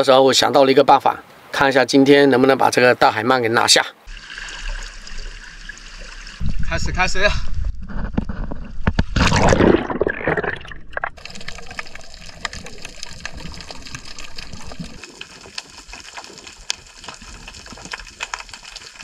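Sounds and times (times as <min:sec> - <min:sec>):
water rushing and splashing: 0:04.0 - 0:06.8, 0:09.2 - 0:19.0
faint crackling clicks: 0:11.0 - 0:19.0.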